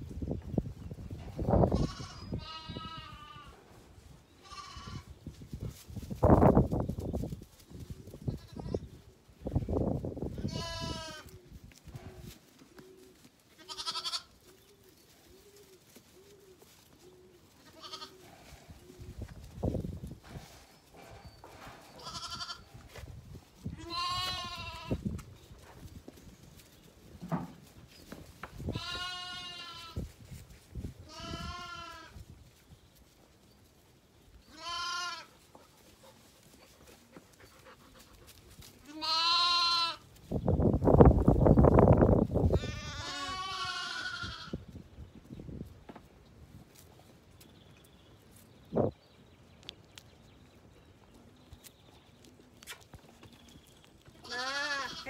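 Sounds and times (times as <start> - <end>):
lambs bleating: 1.7 - 3.5, 4.4 - 5.1, 10.4 - 11.3, 13.6 - 14.4, 17.7 - 18.2, 22.0 - 22.7, 23.8 - 25.0, 28.7 - 30.0, 31.1 - 32.2, 34.5 - 35.3, 38.9 - 40.0, 42.6 - 44.6, 54.2 - 55.0.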